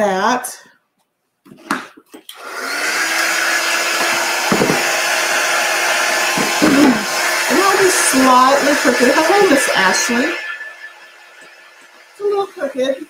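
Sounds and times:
heat tool blowing with low hum: 0:02.4 - 0:13.0
light knocks on frame: 0:04.5 - 0:04.8.

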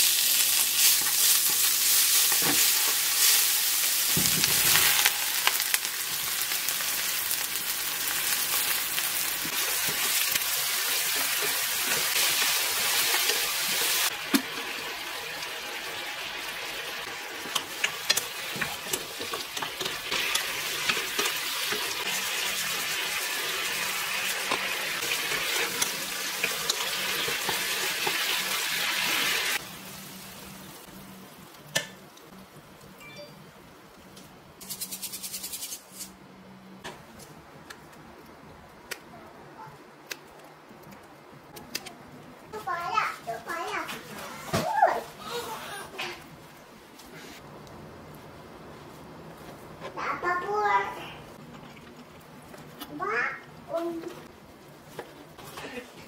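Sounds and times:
food sizzling in oil: 0:00.0 - 0:31.6.

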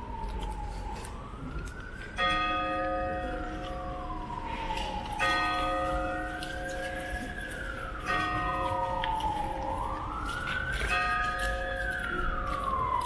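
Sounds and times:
siren wailing: 0:00.0 - 0:13.0
large bell ringing: 0:02.2 - 0:04.3, 0:05.2 - 0:07.3, 0:08.0 - 0:09.1.

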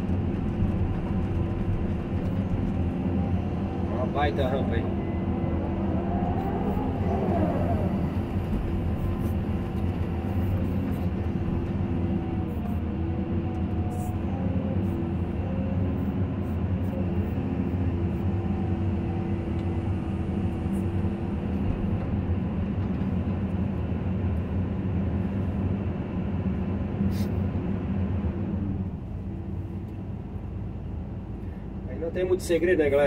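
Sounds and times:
excavator diesel engine running: 0:00.0 - 0:33.0
wavering whine: 0:03.1 - 0:11.2.

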